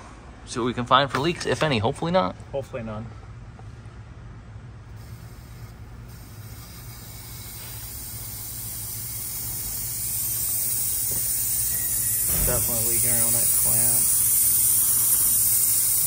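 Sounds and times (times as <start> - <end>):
compressed air hissing: 4.9 - 16.0.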